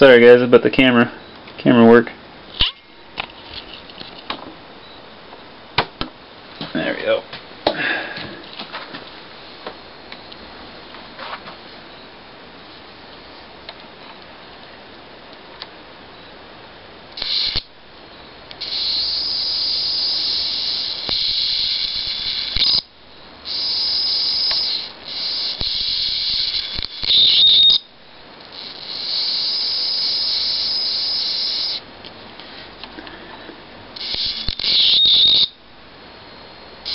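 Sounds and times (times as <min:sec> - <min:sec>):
high-voltage arc hissing: 0:17.1 - 0:17.7, 0:18.5 - 0:31.9, 0:34.0 - 0:35.6.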